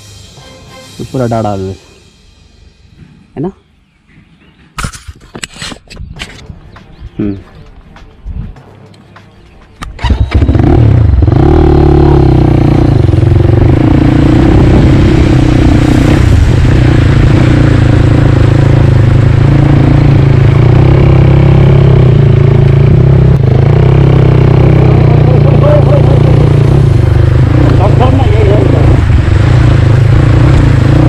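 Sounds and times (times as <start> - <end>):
motorcycle engine running: 9.8 - 31.0.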